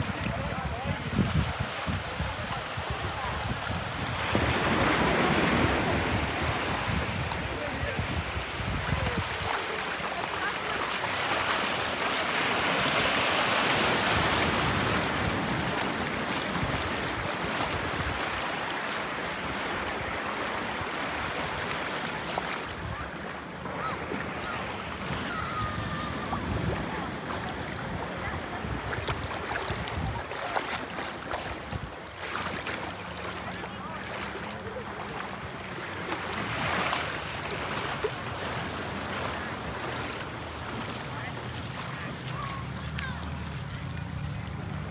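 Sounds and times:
wind buffeting microphone: 0:00.0 - 0:09.8, 0:25.1 - 0:32.0
small waves washing over sand: 0:00.0 - 0:44.9.

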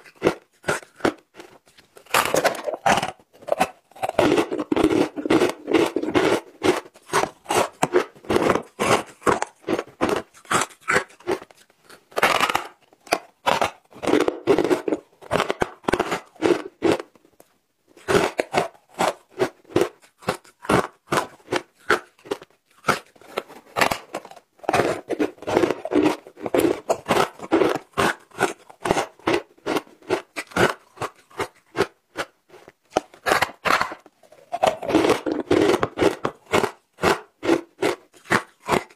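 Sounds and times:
ice crunching: 0:00.0 - 0:17.0, 0:18.0 - 0:32.3, 0:32.9 - 0:38.9.

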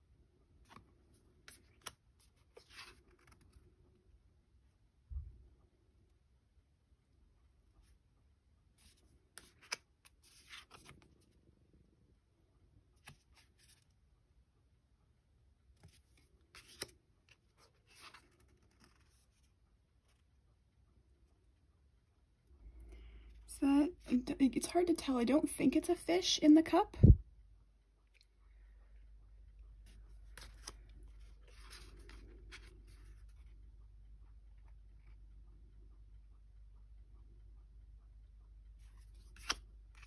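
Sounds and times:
cards sliding against each other: 0:08.8 - 0:11.0, 0:15.8 - 0:17.0, 0:29.8 - 0:33.3, 0:38.9 - 0:40.0
cards clicking: 0:09.4 - 0:10.9, 0:39.2 - 0:40.0.

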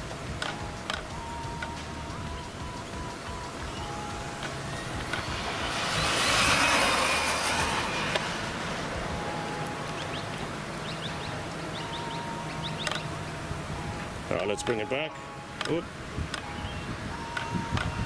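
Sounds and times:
rc truck speeding past: 0:03.3 - 0:10.2.

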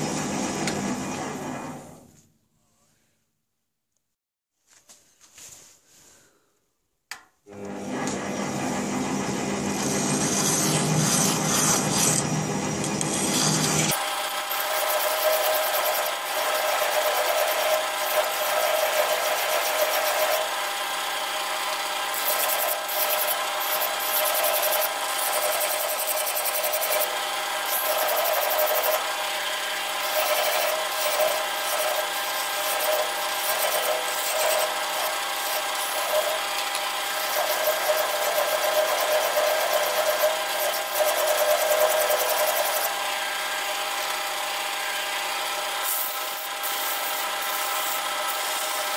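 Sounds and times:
metal lathe humming: 0:07.6 - 0:48.9
hand file rasping on steel: 0:14.4 - 0:20.5, 0:22.1 - 0:29.1, 0:29.8 - 0:42.9.

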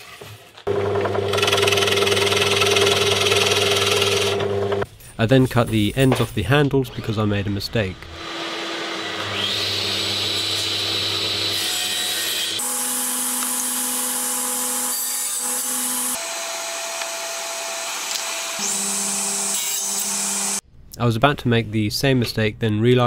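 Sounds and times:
table saw cutting wood: 0:00.7 - 0:04.8, 0:08.1 - 0:20.6.

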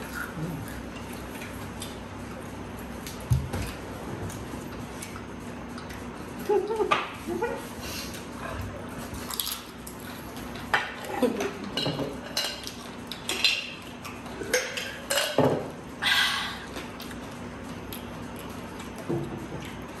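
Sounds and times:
plates and cutlery clinking: 0:10.6 - 0:13.8.

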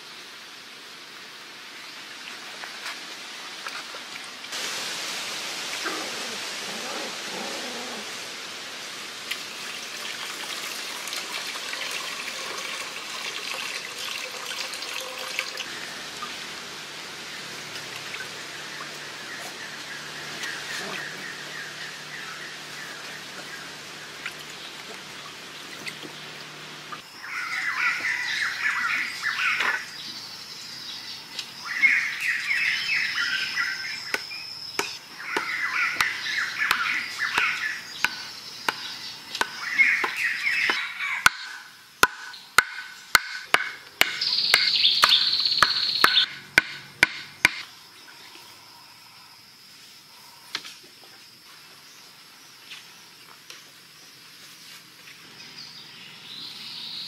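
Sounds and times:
birds trilling: 0:17.2 - 0:41.7, 0:44.0 - 0:47.6.

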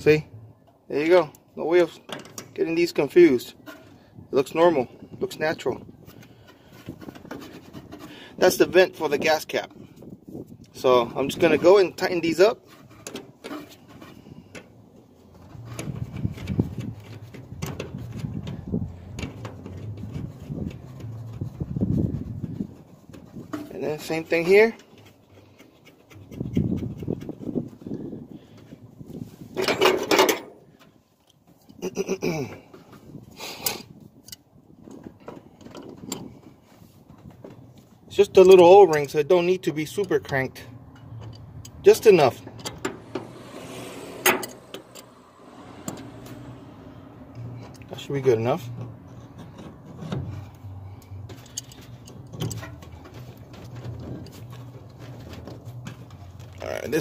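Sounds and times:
low pulsing hum: 0:42.5 - 0:47.8
short falling whine: 0:42.6 - 0:47.6
hands handling hoses clicking: 0:50.5 - 0:54.7.

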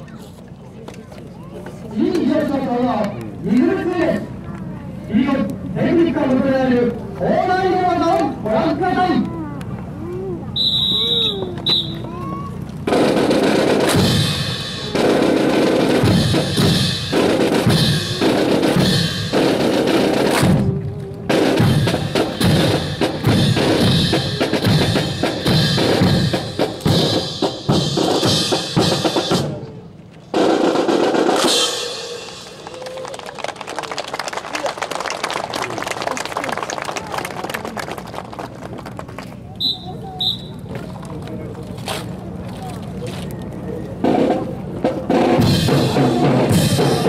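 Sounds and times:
snare and bass drumming: 0:12.8 - 0:29.7, 0:30.3 - 0:33.0, 0:44.0 - 0:47.0.

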